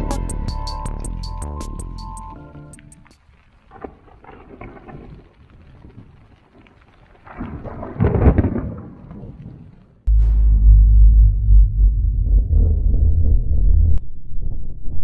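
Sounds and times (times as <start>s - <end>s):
rain on a tent: 2.8s - 10.0s
thunder rolling: 3.7s - 15.0s
loud deep rumble: 10.1s - 15.0s.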